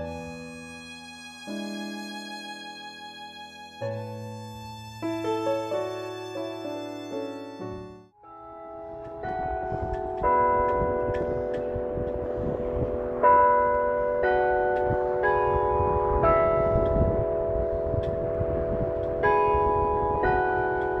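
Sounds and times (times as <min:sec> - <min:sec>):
tower bells chiming: 0:08.2 - 0:21.0.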